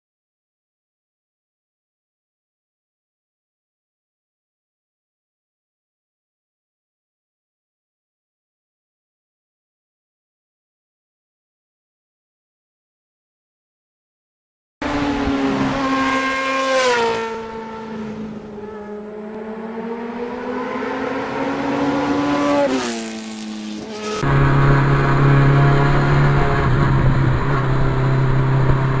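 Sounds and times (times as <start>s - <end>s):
motorcycle engine revving: 14.8s - 29.0s.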